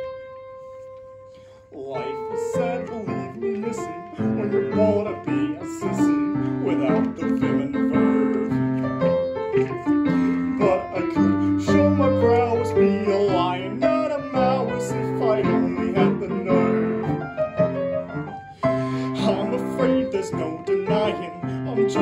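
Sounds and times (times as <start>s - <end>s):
piano accompaniment: 0.0s - 22.0s
person singing: 1.6s - 17.4s, 18.6s - 22.0s.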